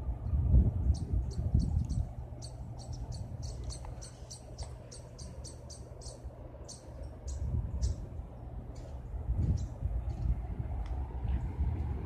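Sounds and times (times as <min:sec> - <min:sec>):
low steady rumble: 0:00.0 - 0:12.0
rapid high-pitched chirping: 0:00.9 - 0:08.0.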